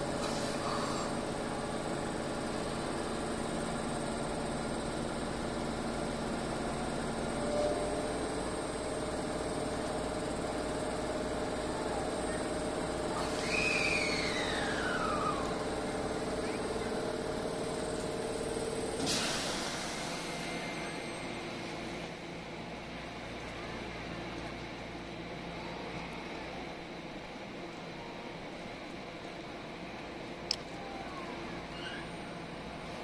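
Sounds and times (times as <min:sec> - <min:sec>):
electric train humming: 0:00.0 - 0:33.0.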